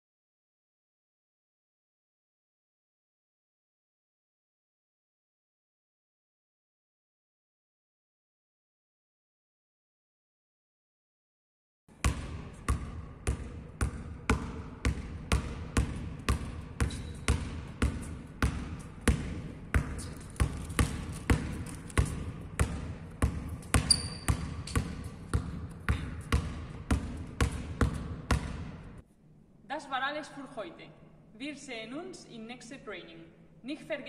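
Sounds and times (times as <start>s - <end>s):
basketball bouncing on floor: 11.9s - 29.0s
shoe squeak: 16.8s - 17.4s, 23.6s - 25.2s.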